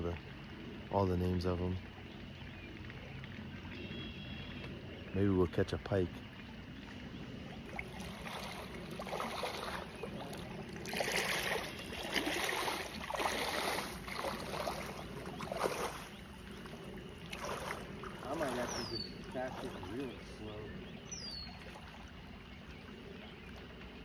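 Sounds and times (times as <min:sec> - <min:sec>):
boots sloshing through water: 0:06.3 - 0:24.0.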